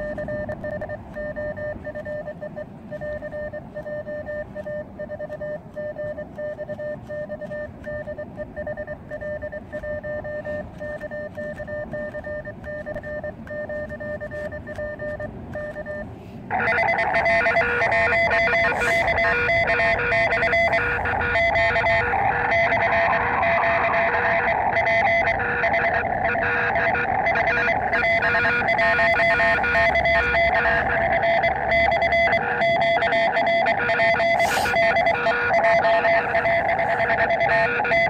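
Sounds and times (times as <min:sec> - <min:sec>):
morse code beeps: 0:00.0 - 0:38.0
loud multi-tone sound: 0:11.8 - 0:38.0.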